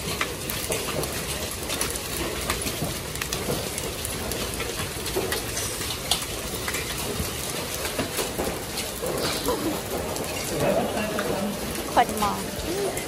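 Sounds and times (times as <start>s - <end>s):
hailstones ticking: 0.0s - 13.0s
rain pattering on concrete: 0.0s - 13.0s.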